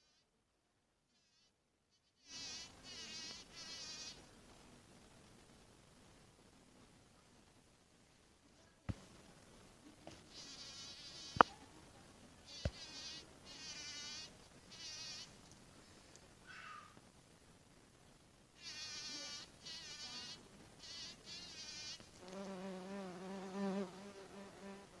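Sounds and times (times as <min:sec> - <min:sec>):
insect buzzing close by: 0:01.1 - 0:04.2, 0:10.2 - 0:11.5, 0:12.5 - 0:15.4, 0:18.6 - 0:25.0.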